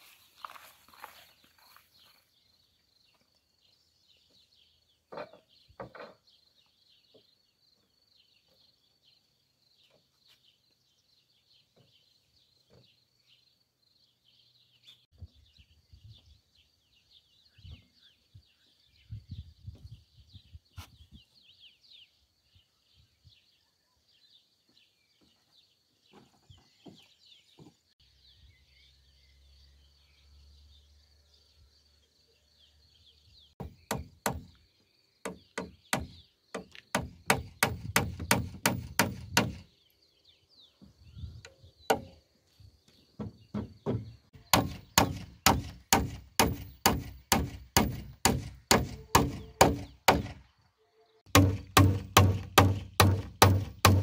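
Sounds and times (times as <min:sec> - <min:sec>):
faint birds chirping: 0:00.0 - 0:54.0
hammer driving nails into wood: 0:33.6 - 0:34.6, 0:35.3 - 0:39.6, 0:43.5 - 0:50.4, 0:51.3 - 0:54.0.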